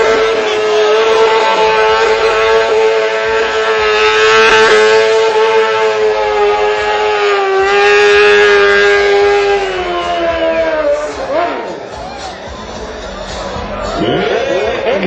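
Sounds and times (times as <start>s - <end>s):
motorcycle engine revving: 0.0s - 12.0s.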